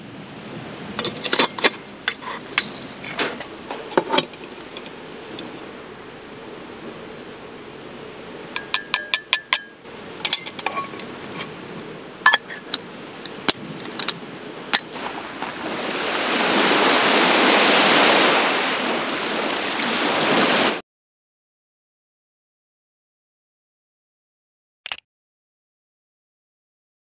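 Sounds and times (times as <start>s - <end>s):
waves on a beach: 0.0s - 20.8s
metal cups clinking: 1.0s - 6.9s, 8.5s - 11.5s, 12.2s - 15.0s.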